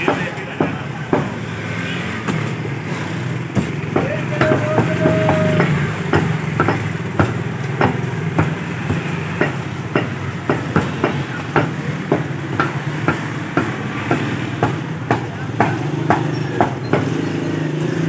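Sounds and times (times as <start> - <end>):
cleaver chopping on wooden block: 3.5 - 17.1.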